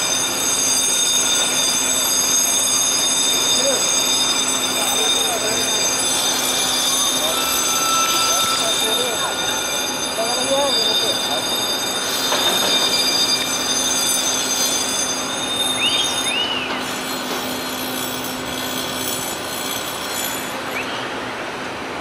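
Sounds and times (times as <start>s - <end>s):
locomotive mechanical rumble: 0.0s - 20.9s
short squeaks: 0.0s - 21.0s
high whine: 0.0s - 21.3s.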